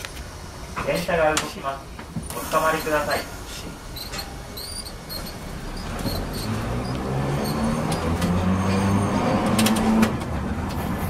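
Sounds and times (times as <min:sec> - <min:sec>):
streetcar motor whine: 0:00.0 - 0:11.0.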